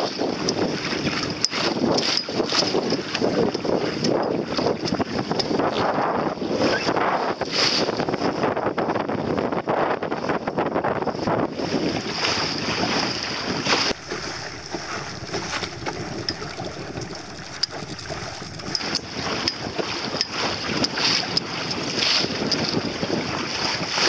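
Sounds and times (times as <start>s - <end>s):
choppy water splashing against hull: 0.2s - 6.7s, 10.1s - 24.0s
wind buffeting microphone: 8.0s - 24.0s.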